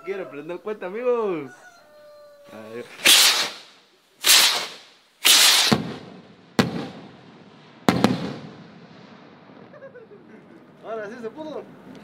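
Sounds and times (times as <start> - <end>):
skyrocket bangs: 3.0 - 7.2, 7.8 - 8.8
sharp rocket cracks: 3.0 - 9.4.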